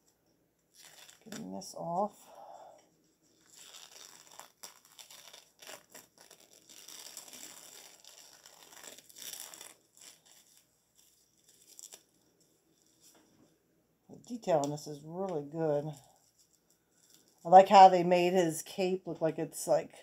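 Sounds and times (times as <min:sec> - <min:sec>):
wrapping crinkling and rustling: 0:00.6 - 0:13.6, 0:14.2 - 0:17.9.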